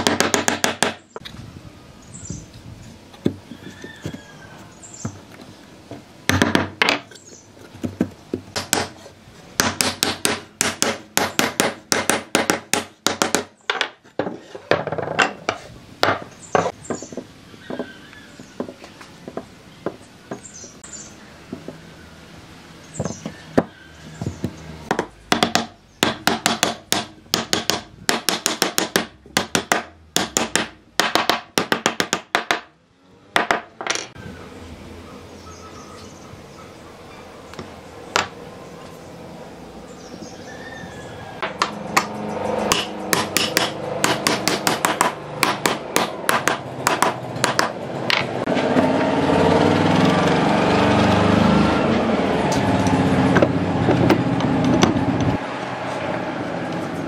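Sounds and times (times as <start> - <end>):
hammering on wood: 0.0 - 1.0, 7.8 - 9.0, 9.6 - 15.3, 23.0 - 32.7, 41.4 - 48.2.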